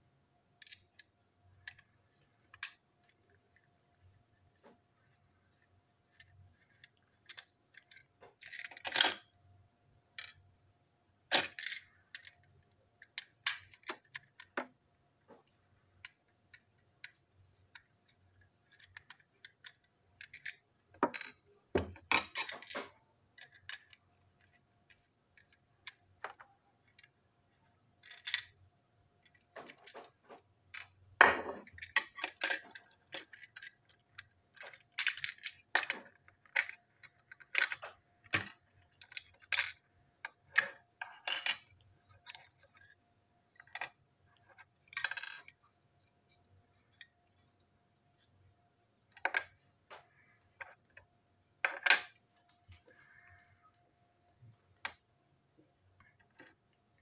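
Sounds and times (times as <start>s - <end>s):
small parts clattering on tabletop: 18.6s - 27.1s, 29.2s - 45.6s.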